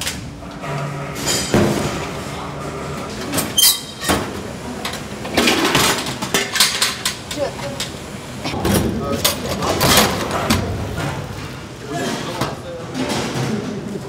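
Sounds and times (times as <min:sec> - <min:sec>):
metal pans clattering and scraping: 0:03.3 - 0:07.2, 0:08.5 - 0:13.9.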